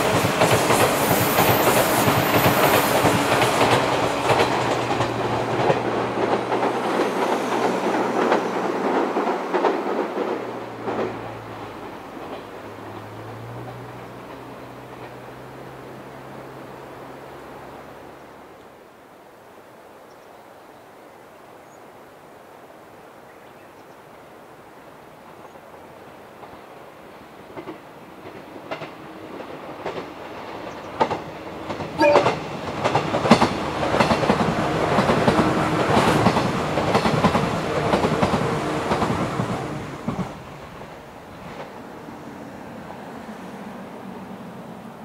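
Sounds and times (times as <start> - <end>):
rail-joint clicks: 0.0 - 15.8, 27.5 - 41.8
train cars rumbling and clattering: 0.0 - 17.5, 26.3 - 45.0.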